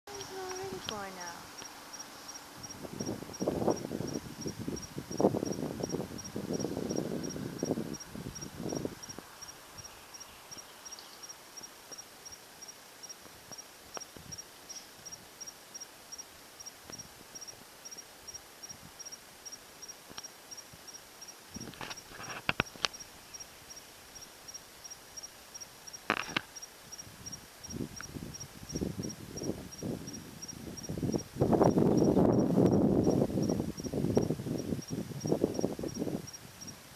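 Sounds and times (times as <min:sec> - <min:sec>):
cricket chirping: 0:00.1 - 0:36.9
rustling noises: 0:21.5 - 0:23.3.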